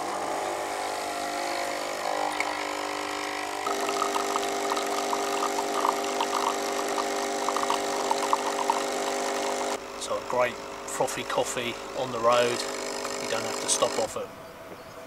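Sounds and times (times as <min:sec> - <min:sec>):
coffee machine pump buzzing: 0:00.0 - 0:09.8, 0:11.7 - 0:14.2
coffee pouring into mug: 0:02.3 - 0:09.7.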